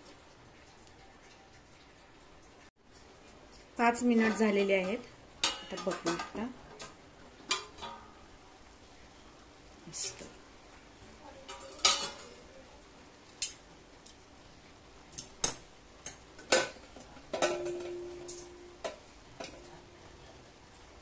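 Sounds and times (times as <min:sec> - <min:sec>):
metal kitchen utensils clattering: 0:03.8 - 0:08.3, 0:11.4 - 0:12.4, 0:15.2 - 0:20.1.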